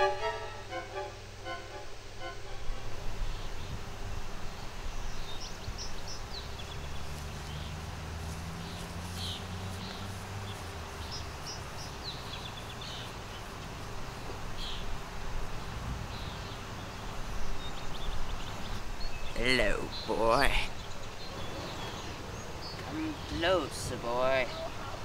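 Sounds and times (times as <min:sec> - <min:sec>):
steady low rumble: 0:00.0 - 0:17.6
small birds chirping: 0:03.0 - 0:25.0.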